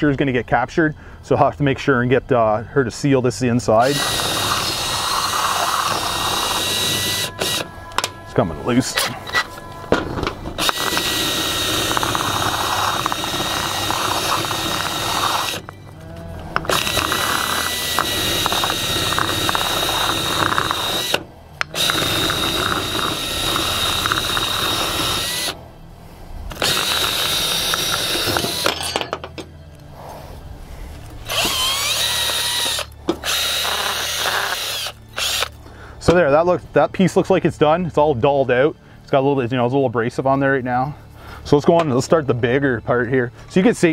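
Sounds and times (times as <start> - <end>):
drill sanding with steady whine: 3.8 - 9.7, 10.6 - 15.7, 16.6 - 25.6, 26.5 - 28.7, 31.2 - 35.6.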